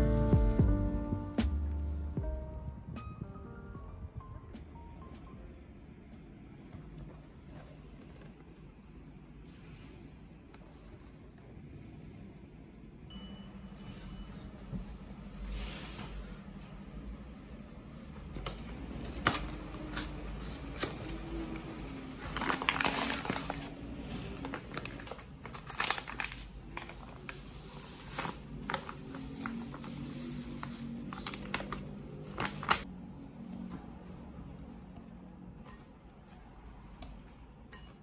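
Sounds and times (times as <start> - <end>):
paper bag crinkling: 18.7 - 32.8.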